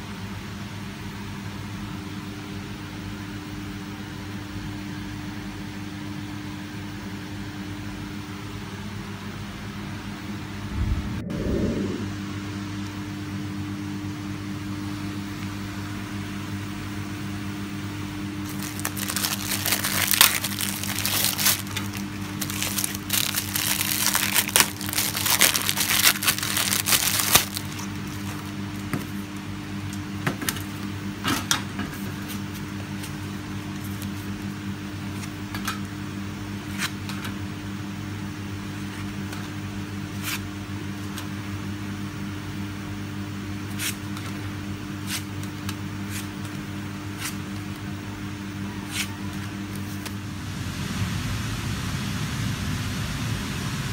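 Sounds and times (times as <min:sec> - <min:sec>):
steady low hum: 0:10.4 - 0:31.2, 0:49.5 - 0:53.9
plastic wrapping crinkling and tearing: 0:18.4 - 0:29.4.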